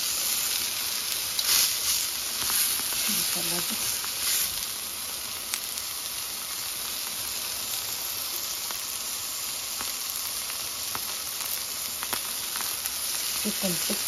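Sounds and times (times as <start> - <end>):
meat sizzling in oil: 0.0 - 14.0.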